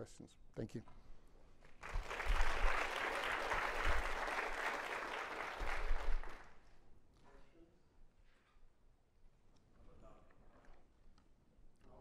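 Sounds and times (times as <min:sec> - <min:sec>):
audience applauding: 0:01.7 - 0:06.6.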